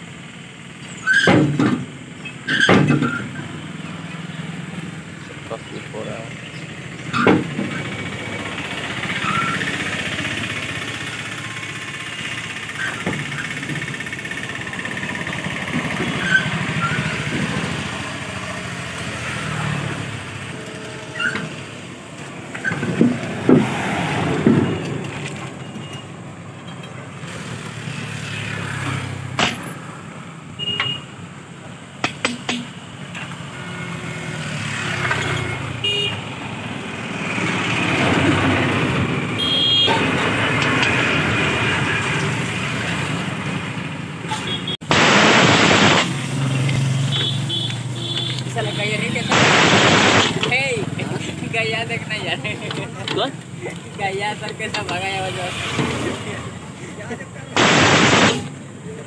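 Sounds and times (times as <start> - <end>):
vehicle engine running: 3.5 - 24.2
sharp clicks and knocks: 32.0 - 33.4.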